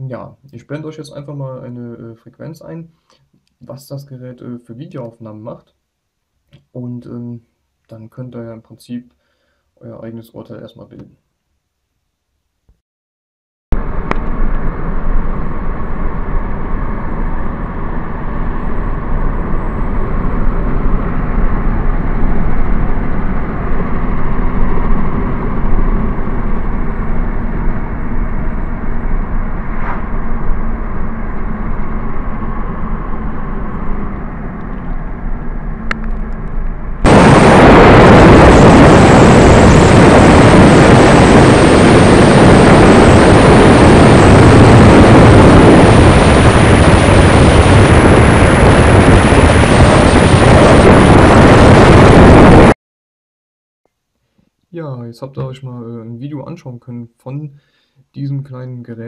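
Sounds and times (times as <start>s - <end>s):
road and engine rumble: 13.7s - 52.0s
harsh rushing noise: 13.7s - 52.8s.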